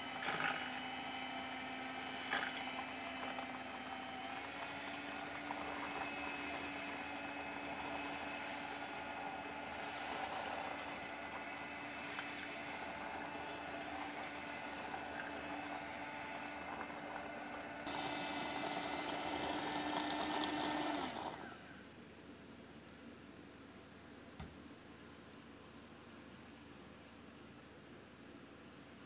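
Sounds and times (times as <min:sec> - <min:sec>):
electric hand mixer whisking: 0:00.0 - 0:21.7.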